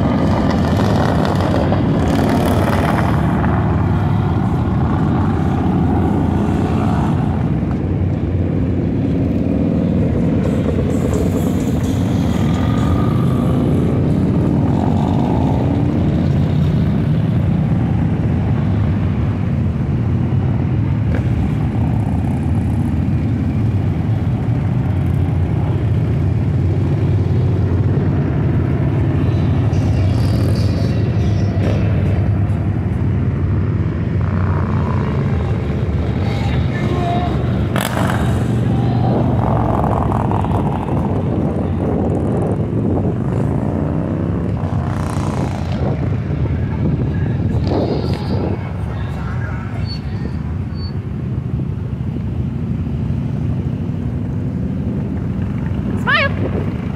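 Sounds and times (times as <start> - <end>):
motorcycles riding past: 0.0 - 56.9.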